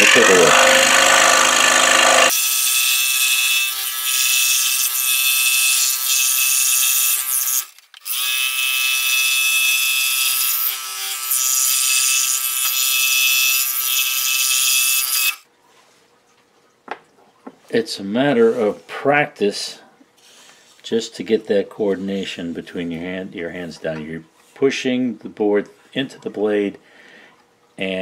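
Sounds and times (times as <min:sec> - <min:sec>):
scroll saw cutting wood: 0:00.0 - 0:15.4.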